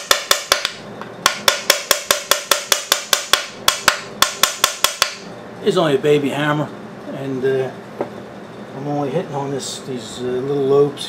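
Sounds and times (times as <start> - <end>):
small hammer tapping on metal: 0.0 - 5.2.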